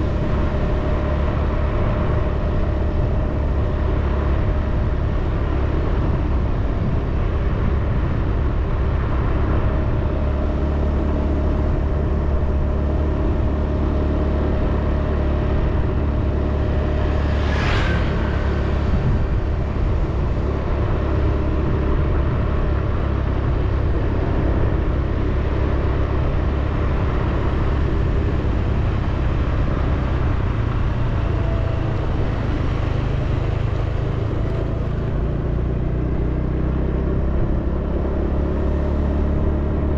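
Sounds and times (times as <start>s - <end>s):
vehicle driving on paved road: 0.0s - 39.9s.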